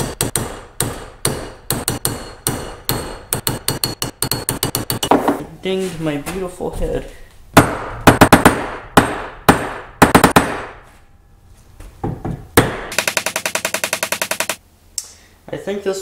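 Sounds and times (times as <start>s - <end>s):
hammer striking steel wedge: 0.0s - 5.4s.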